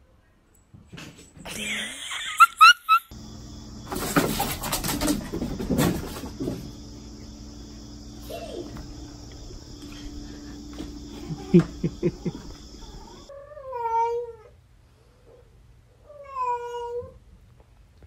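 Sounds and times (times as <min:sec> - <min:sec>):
high insect drone: 0:01.6 - 0:13.3.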